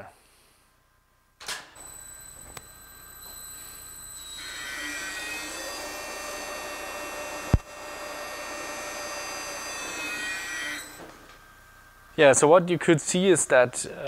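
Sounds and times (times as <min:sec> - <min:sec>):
motor whine: 0:01.8 - 0:12.2.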